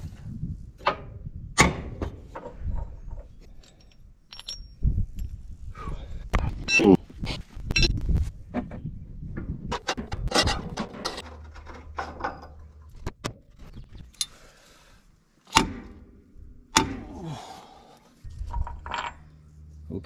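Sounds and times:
hand tools clinking on steel: 0:03.6 - 0:04.8.

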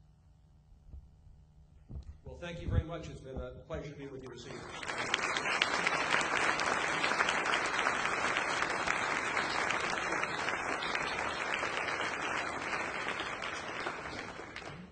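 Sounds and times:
audience applauding: 0:04.3 - 0:14.9.

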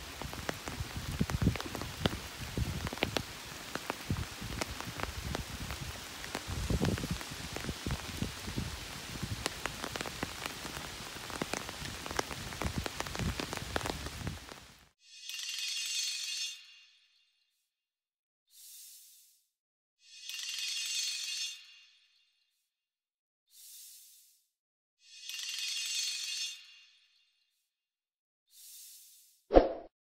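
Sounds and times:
sharp water drips: 0:00.0 - 0:14.1
rain on leaves and ground: 0:00.0 - 0:15.0.

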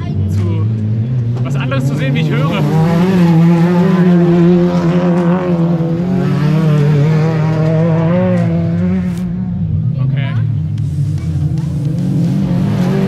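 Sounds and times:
race car engines droning: 0:00.0 - 0:13.0.

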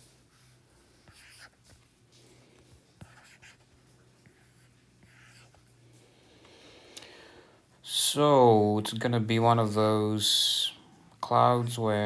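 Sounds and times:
stylus scratching on glass screen: 0:03.0 - 0:05.8.

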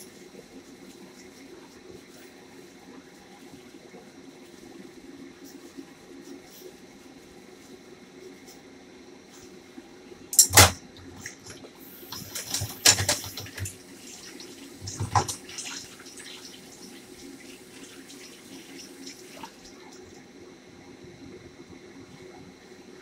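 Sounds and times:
steady low hum: 0:00.0 - 0:23.0
tap running into sink: 0:14.8 - 0:15.5.

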